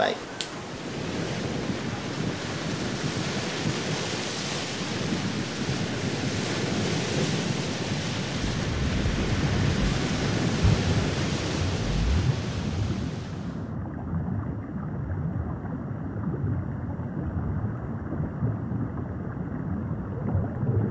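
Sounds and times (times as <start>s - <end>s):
ocean surf: 0.0s - 13.7s
wind buffeting microphone: 0.5s - 13.7s.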